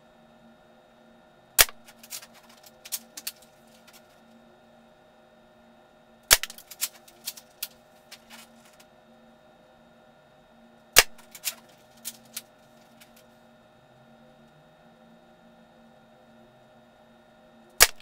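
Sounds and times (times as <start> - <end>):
airsoft rifle shots: 1.6 - 1.9, 6.3 - 6.9, 11.0 - 11.5, 17.8 - 18.0.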